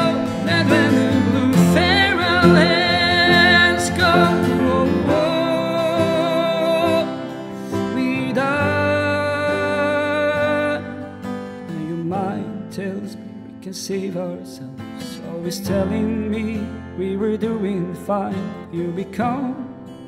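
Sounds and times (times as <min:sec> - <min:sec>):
acoustic guitar song: 0:00.0 - 0:20.0.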